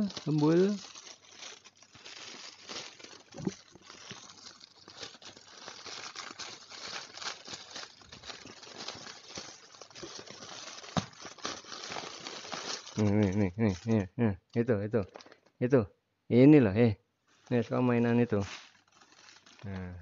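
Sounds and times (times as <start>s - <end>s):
plastic mailer bag crinkling: 0.0s - 14.0s, 17.4s - 20.0s.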